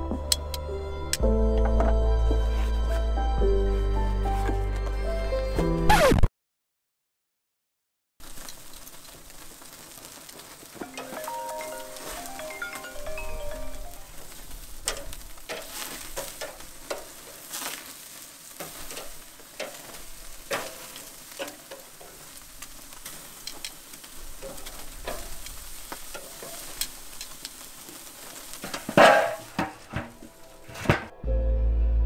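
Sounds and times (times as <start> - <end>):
meat sizzling on a grill: 8.2 - 30.8
fat crackling and popping: 8.2 - 31.2
metal grill lid knock: 28.9 - 30.2.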